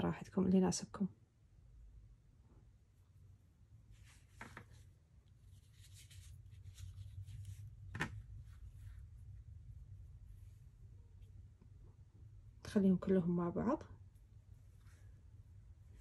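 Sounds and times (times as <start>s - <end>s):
thread spools rustling: 3.8s - 11.4s.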